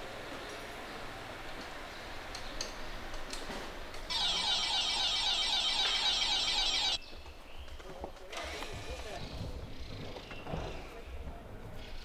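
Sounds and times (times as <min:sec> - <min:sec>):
electric bell ringing: 0:04.1 - 0:07.0.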